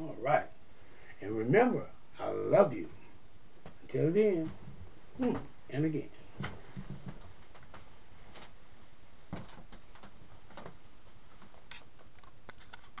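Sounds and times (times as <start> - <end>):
low room hum and hiss: 0.0 - 13.0
faint clicks and soft knocks: 6.4 - 8.6, 9.3 - 13.0.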